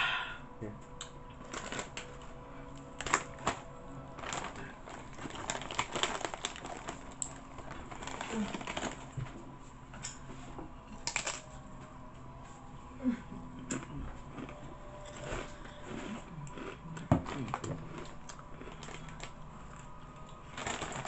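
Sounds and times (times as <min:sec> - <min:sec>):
crunching tortilla chips: 0:01.4 - 0:09.1, 0:11.0 - 0:11.6, 0:13.8 - 0:21.0.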